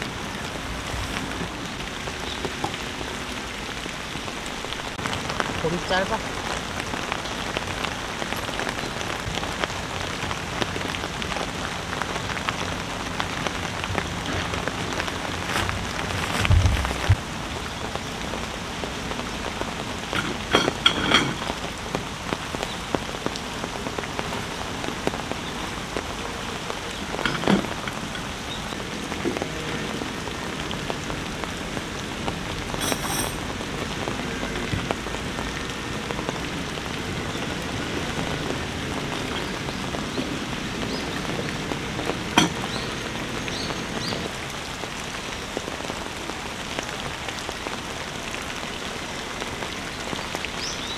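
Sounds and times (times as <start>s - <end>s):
heavy rain falling: 0.0s - 50.9s
knocks and rustles: 15.4s - 17.2s.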